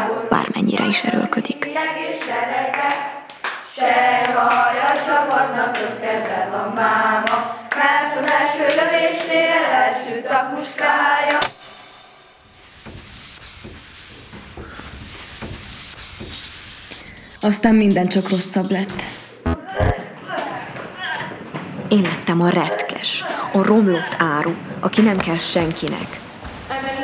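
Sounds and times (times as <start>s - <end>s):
choir singing sustained chords: 1.7s - 11.7s
sharp hand claps: 2.2s - 5.0s
low hiss: 11.4s - 19.5s, 24.6s - 27.0s.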